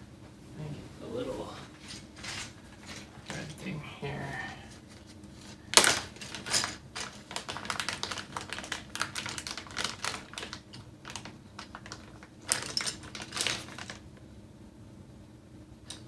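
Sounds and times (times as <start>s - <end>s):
plastic bag crinkling: 5.5s - 14.1s.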